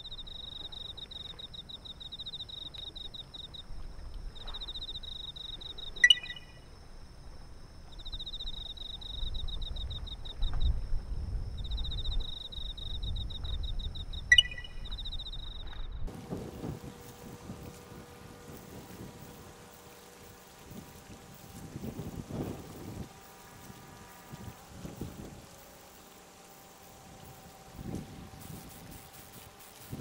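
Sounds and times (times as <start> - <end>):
insects trilling: 0.0 - 30.0
thin high whine: 0.0 - 30.0
short sharp chirps: 5.9 - 6.6, 14.3 - 15.0.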